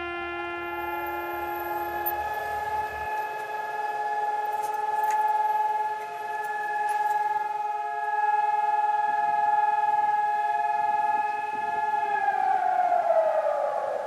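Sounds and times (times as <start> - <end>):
civil defense siren: 0.0 - 14.0.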